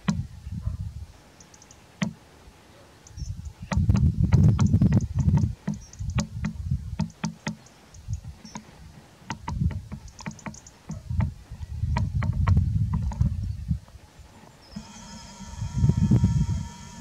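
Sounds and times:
wind buffeting microphone: 0:00.0 - 0:01.2, 0:03.1 - 0:07.1, 0:08.0 - 0:17.0
sharp clicks and knocks: 0:01.4 - 0:02.2, 0:03.6 - 0:13.3.

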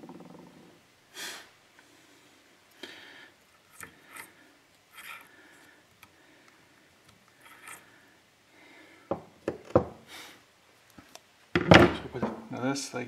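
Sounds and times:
faint scrapes and rustles: 0:03.6 - 0:05.8, 0:07.2 - 0:08.2.

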